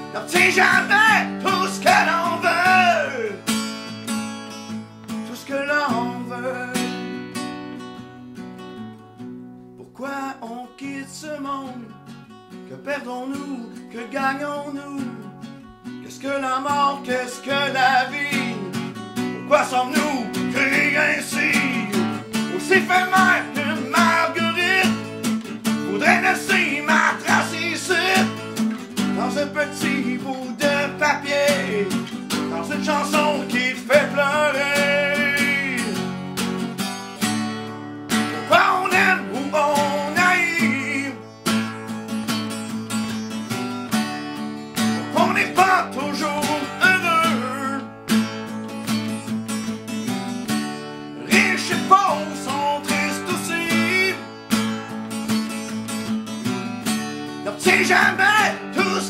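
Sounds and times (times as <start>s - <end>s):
man singing: 0.0s - 3.6s, 5.2s - 7.4s, 9.8s - 12.0s, 12.7s - 36.2s, 38.1s - 41.8s, 44.8s - 48.0s, 51.1s - 54.9s, 57.3s - 59.0s
strummed acoustic guitar: 0.0s - 59.0s.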